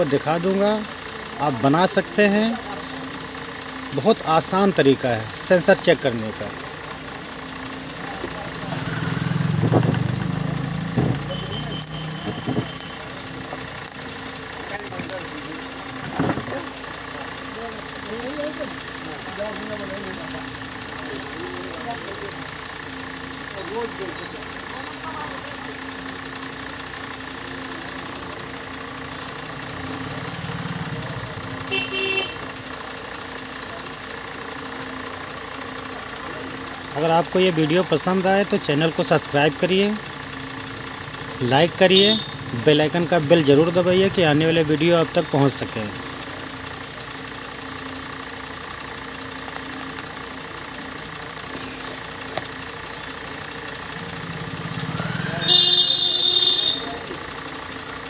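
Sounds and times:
low rapid rattle: 0.0s - 11.4s, 12.1s - 31.8s
machine hum: 0.0s - 24.4s, 45.9s - 57.8s.

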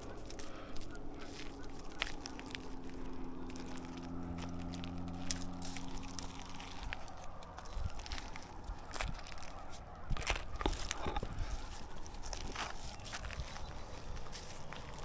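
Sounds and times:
scraping on tree bark: 0.0s - 15.0s.

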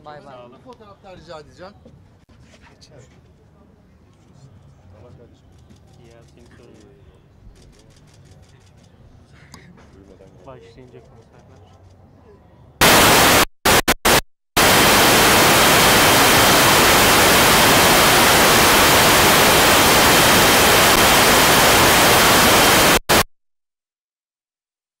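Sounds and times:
loud static hiss: 12.8s - 23.3s.

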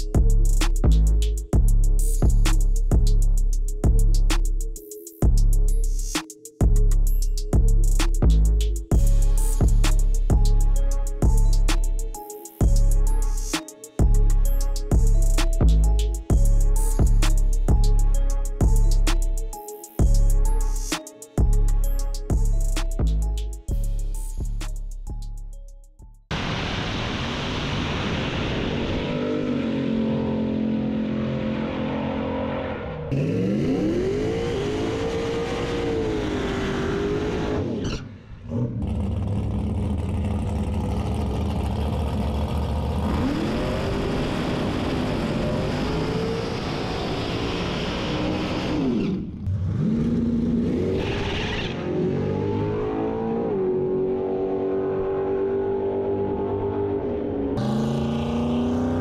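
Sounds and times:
race car engines revving: 28.6s - 59.0s.

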